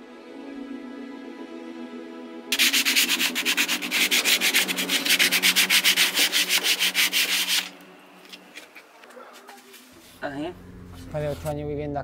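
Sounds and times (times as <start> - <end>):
sandpaper rubbing on wood: 2.5 - 7.8.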